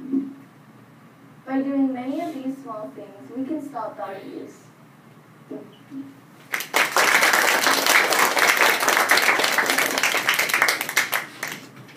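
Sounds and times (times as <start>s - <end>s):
audience applause: 6.5s - 11.7s.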